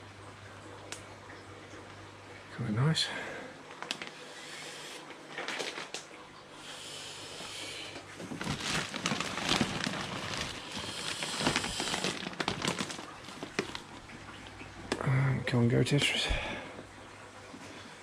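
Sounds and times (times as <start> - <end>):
plastic bags crinkling: 5.4 - 6.0, 8.2 - 14.3.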